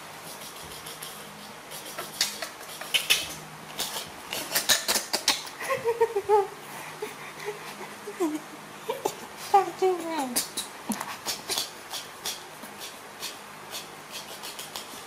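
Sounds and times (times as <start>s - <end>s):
baby monkey vocalizing: 0.3s - 15.0s.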